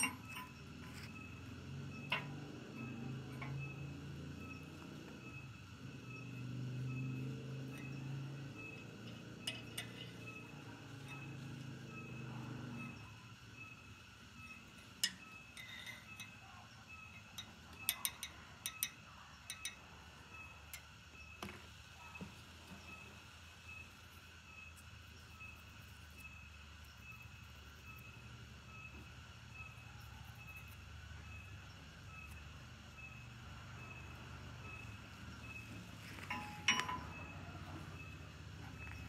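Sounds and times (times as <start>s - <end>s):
metal rods clinking: 0.0s - 4.5s, 7.7s - 12.2s, 15.0s - 16.4s, 35.4s - 38.1s
faint steady hum: 0.0s - 39.0s.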